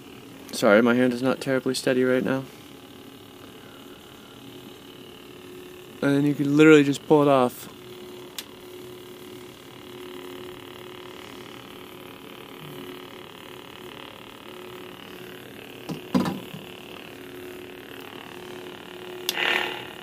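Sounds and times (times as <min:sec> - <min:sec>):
lightsaber electronic hum: 0:00.0 - 0:20.0
lightsaber hum burst: 0:00.0 - 0:20.0.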